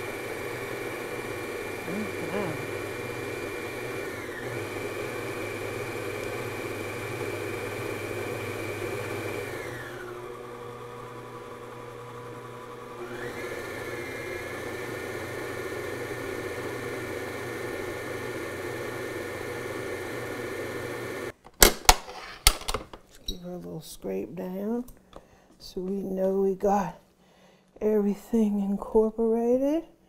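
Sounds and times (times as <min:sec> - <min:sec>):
stand mixer motor whining: 0:00.0 - 0:21.3.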